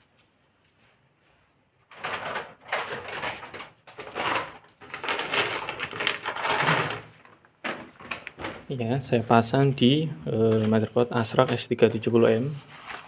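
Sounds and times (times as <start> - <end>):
packaging rustling and crackling: 1.9 - 8.7, 10.3 - 13.0.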